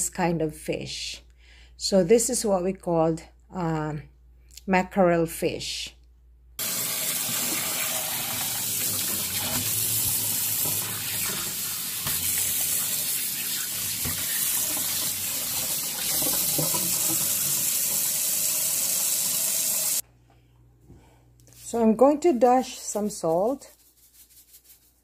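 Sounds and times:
tap water splashing in a sink: 6.6s - 19.8s
hand rubbing fish: 23.2s - 25.0s.

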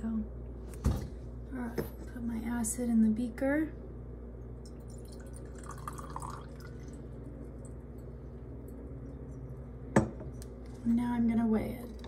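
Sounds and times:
liquid dripping: 4.5s - 9.3s
liquid trickling into a beaker: 4.6s - 7.8s.

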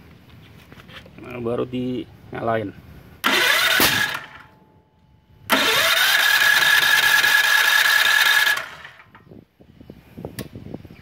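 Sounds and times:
generator starter cranking engine: 3.2s - 4.5s, 5.4s - 9.3s.

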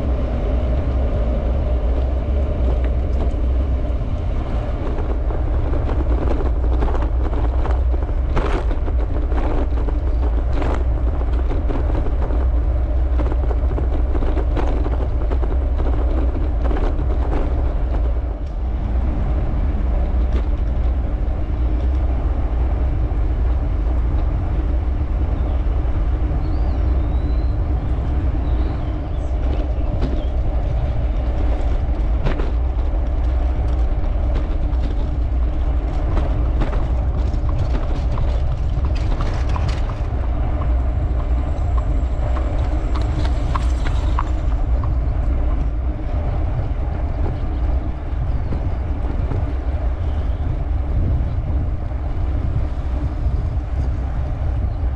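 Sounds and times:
road rumble: 0.0s - 54.9s
wind buffeting: 0.0s - 54.9s.

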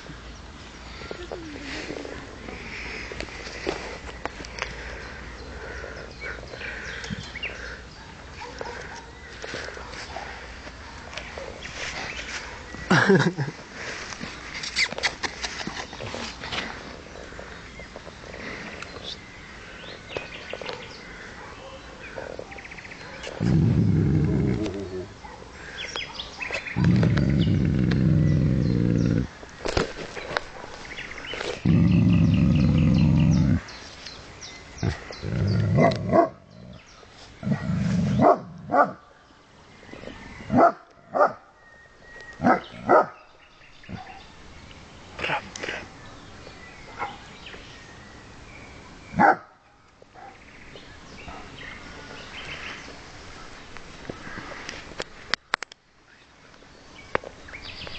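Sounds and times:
birds chirping and trilling: 0.0s - 57.9s
dog barking: 8.0s - 9.2s, 20.7s - 22.0s, 25.2s - 25.6s, 35.8s - 36.4s, 38.2s - 39.0s, 40.5s - 41.4s, 42.4s - 43.2s, 46.9s - 47.2s, 49.2s - 49.6s, 50.2s - 50.4s
dog deep vocalisation: 22.1s - 25.2s, 26.8s - 29.3s, 31.6s - 33.7s, 34.8s - 38.9s.

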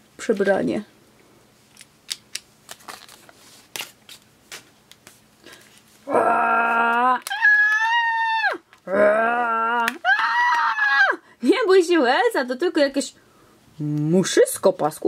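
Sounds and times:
person screaming in fright: 6.1s - 11.2s.

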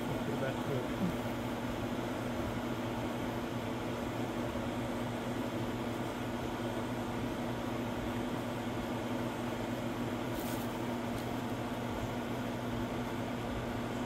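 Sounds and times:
machine hum: 0.0s - 14.0s
faint rustle: 10.3s - 11.4s.

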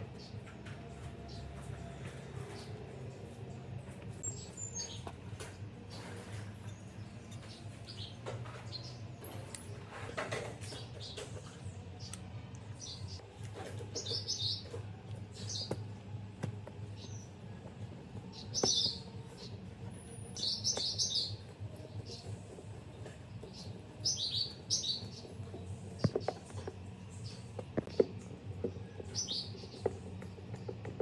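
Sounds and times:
small birds chirping: 0.0s - 31.0s
handling taps and clicks: 27.5s - 31.0s.

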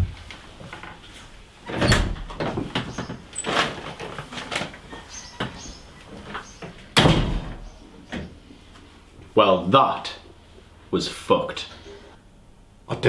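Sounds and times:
door shutting with heavy thud: 1.7s - 3.7s, 6.9s - 8.3s.

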